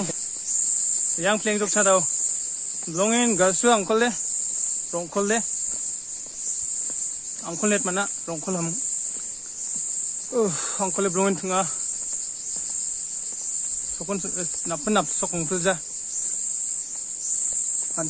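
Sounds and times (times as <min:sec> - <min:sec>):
shrill insect chorus: 0:00.0 - 0:18.0
man talking: 0:01.2 - 0:02.1, 0:02.9 - 0:04.2, 0:05.0 - 0:05.5, 0:07.4 - 0:08.8, 0:10.3 - 0:11.8, 0:14.0 - 0:15.8.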